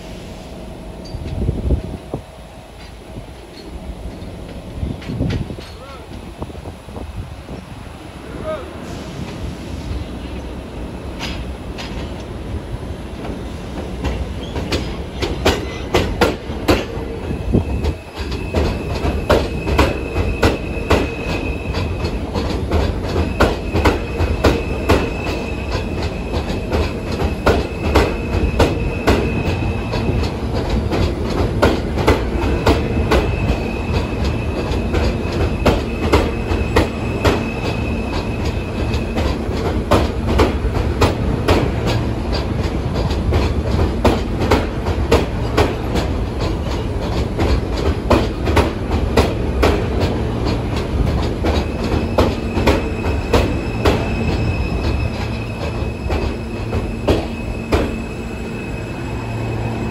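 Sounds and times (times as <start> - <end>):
train rumble: 0.0 - 59.9
train wheels clacking: 8.9 - 12.4, 13.1 - 59.9
high squeal: 17.3 - 22.5, 23.1 - 30.4, 32.4 - 39.4, 51.4 - 59.9.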